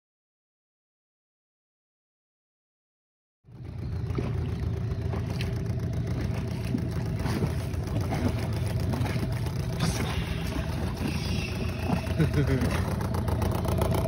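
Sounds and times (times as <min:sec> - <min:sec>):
boat engine droning: 0:03.4 - 0:14.0.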